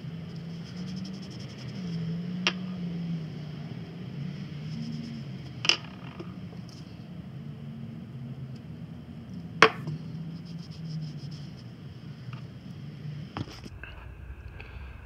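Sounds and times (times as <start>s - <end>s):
low steady hum: 0.0s - 15.0s
sharp knocks: 9.6s - 10.0s.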